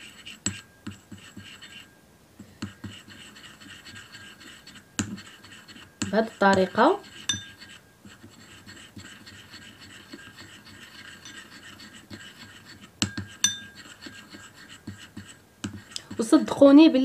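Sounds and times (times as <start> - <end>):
spoon stirring toothpaste in bowl: 0.0 - 17.0
spoon clinking on glass: 7.3 - 7.6, 13.1 - 13.8.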